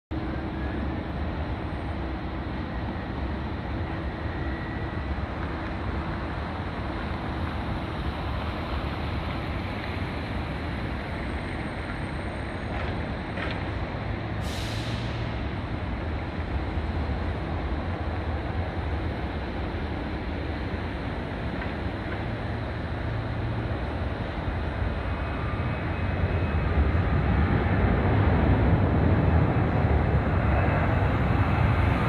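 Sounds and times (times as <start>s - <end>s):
short hiss: 14.4s - 15.2s.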